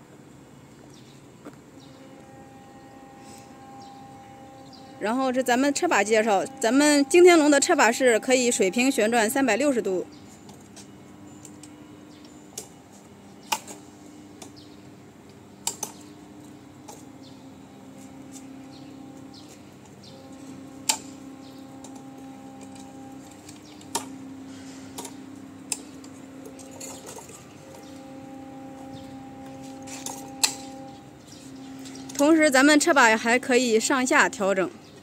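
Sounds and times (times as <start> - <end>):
faint steady hum: 0.0 - 35.0.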